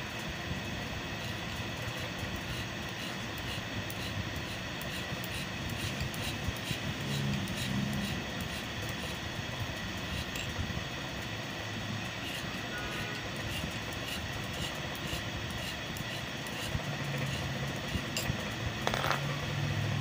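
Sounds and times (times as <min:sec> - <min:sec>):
file rubbing on steel: 0:02.0 - 0:09.2, 0:12.2 - 0:18.2.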